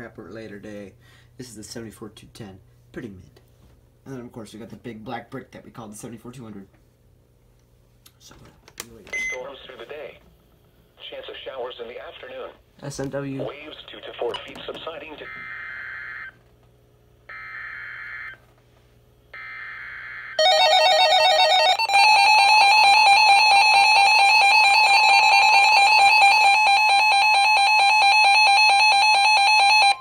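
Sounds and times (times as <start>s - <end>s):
shrill alarm tone: 19.4s - 30.0s.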